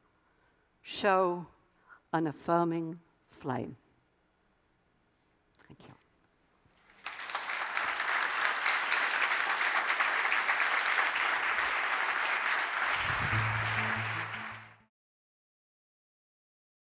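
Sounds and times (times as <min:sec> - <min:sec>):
audience applauding: 0:06.8 - 0:14.9
low musical notes: 0:12.9 - 0:14.9.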